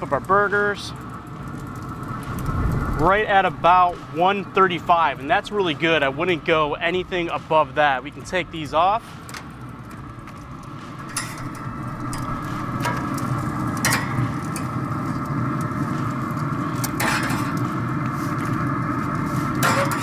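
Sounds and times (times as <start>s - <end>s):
steady rushing noise: 1.6s - 16.8s
metal utensils scraping grill grates: 8.2s - 20.0s.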